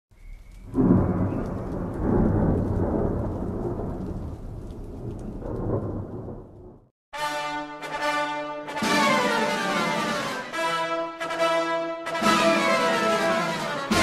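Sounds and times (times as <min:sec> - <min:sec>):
faint rain hiss: 0:00.2 - 0:06.7
thunder crack and rumble: 0:00.5 - 0:06.9.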